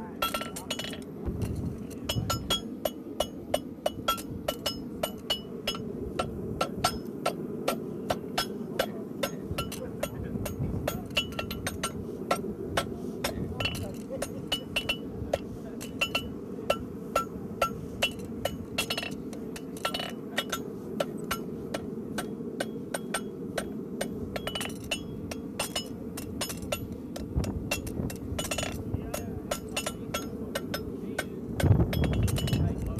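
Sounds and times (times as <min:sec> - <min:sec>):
steady low rumble: 0:00.0 - 0:32.9
hammer striking horseshoe on anvil: 0:27.7 - 0:32.7.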